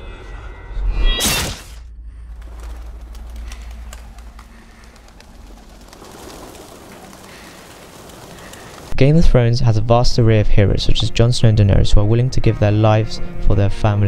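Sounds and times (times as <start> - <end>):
wings fluttering: 2.1 - 9.0
pigeons cooing: 2.6 - 8.9.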